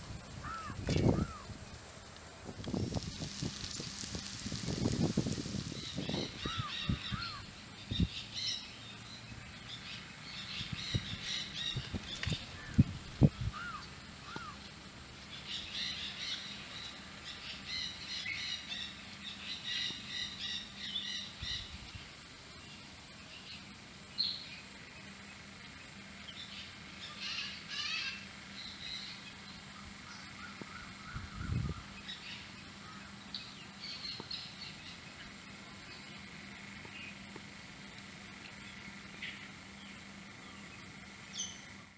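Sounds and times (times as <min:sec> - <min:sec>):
birds chirping: 0:00.4 - 0:41.9
bird calls rising and falling: 0:02.7 - 0:09.1.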